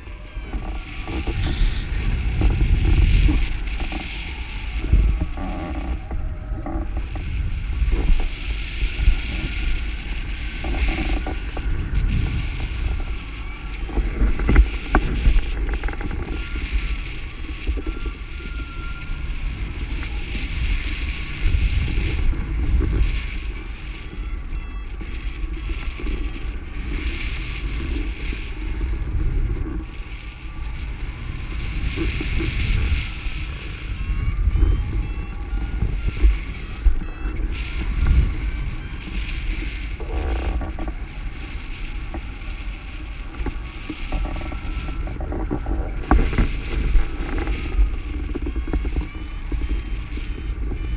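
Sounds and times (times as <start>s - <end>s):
short electronic beeps: 0.0s - 2.1s, 10.6s - 19.2s, 23.0s - 28.3s, 33.1s - 40.8s, 47.2s - 50.9s
wind buffeting microphone: 0.0s - 50.9s.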